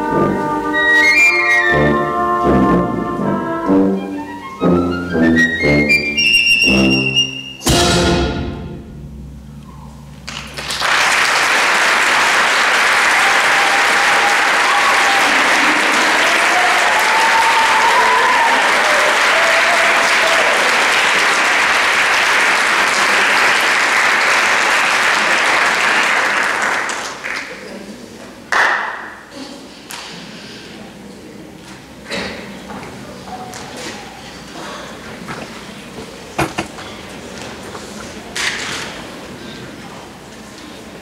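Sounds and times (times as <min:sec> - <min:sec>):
concert band final chord: 0:07.6 - 0:10.7
audience applause: 0:10.2 - 0:27.7.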